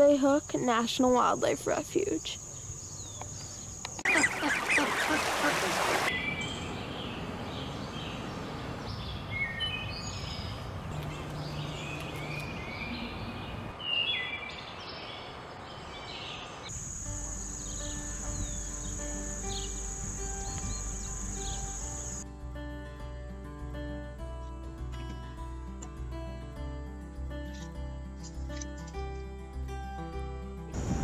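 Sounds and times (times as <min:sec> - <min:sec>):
songbirds chirping: 0:00.0 - 0:22.2
outdoor hiss: 0:15.4 - 0:22.2
soft instrumental music: 0:16.8 - 0:31.0.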